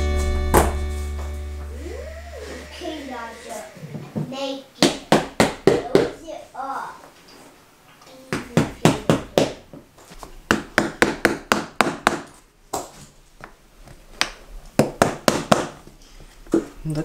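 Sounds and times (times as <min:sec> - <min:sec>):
vinyl floor planks tapped: 0:04.2 - 0:06.2.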